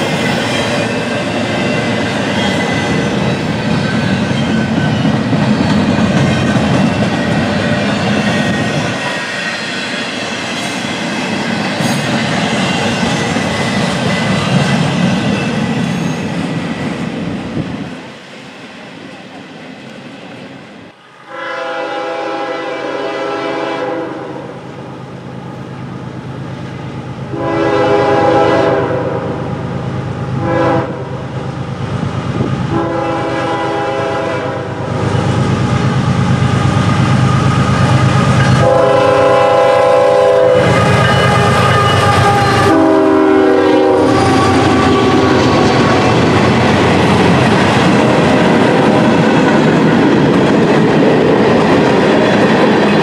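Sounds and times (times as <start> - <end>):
locomotive air horn blasts: 21.2 - 24.4, 27.3 - 29.4, 30.4 - 31.1, 32.7 - 34.7, 38.6 - 45.7.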